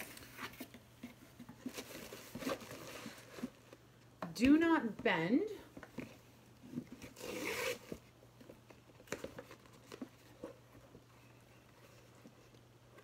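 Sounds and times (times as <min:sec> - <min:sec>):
card tapping and rustling: 0:07.9 - 0:11.1.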